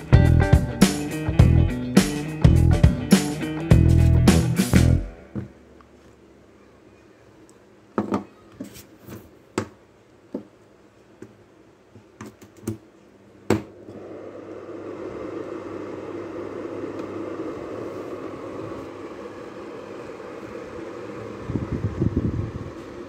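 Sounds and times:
exhaust fan running: 13.8 - 23.0.

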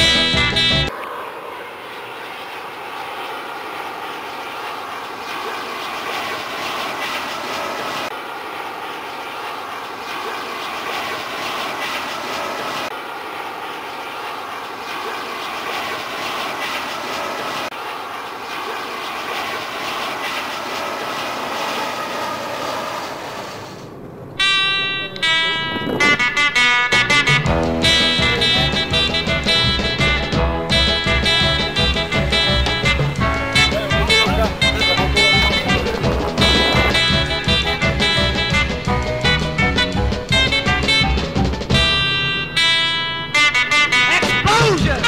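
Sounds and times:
jet engine rush with faint whine: 0.9 - 10.1, 19.3 - 26.6.

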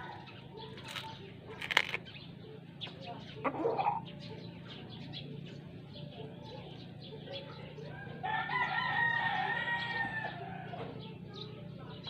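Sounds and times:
rooster crowing: 8.2 - 10.8.

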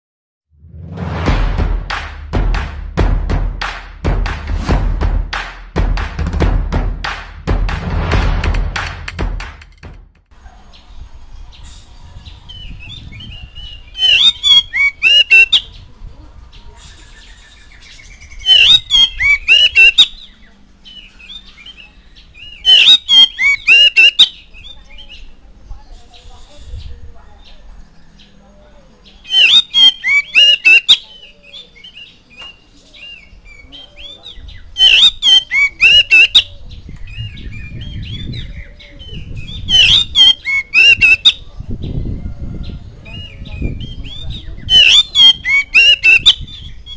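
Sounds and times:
bird singing whistled notes: 10.7 - 15.9, 16.7 - 28.4, 29.0 - 46.9.

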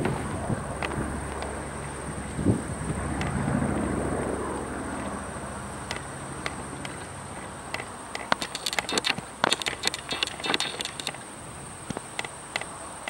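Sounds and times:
distant aircraft engine: 0.0 - 13.0
high insect buzz: 4.6 - 12.4.

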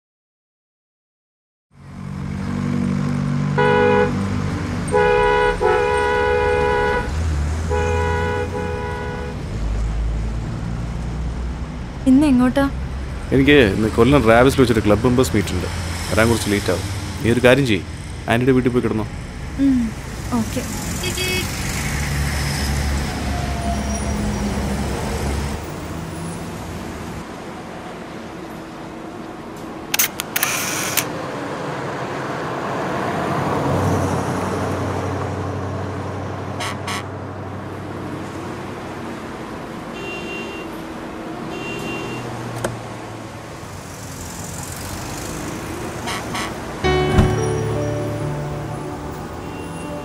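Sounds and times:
car engine and road noise: 1.7 - 50.0
vehicle horn honking: 3.6 - 4.2, 4.9 - 7.1, 7.7 - 9.4, 21.0 - 21.6, 36.6 - 37.1, 40.0 - 40.8, 41.5 - 42.4, 46.1 - 50.0.

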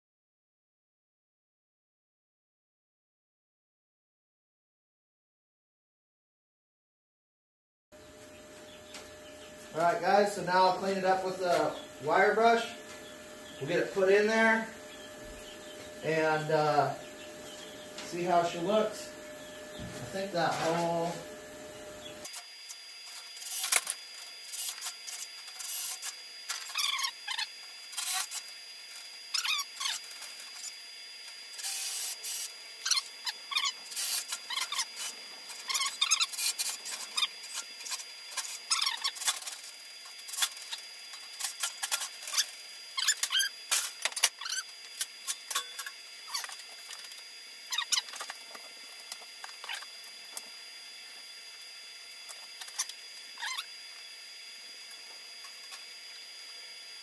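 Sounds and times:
chicks peeping: 8.0 - 22.3.

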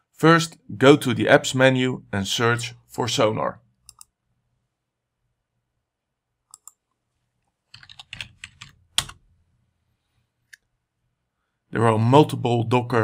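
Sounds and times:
computer keyboard typing: 6.5 - 6.8, 7.7 - 9.2.

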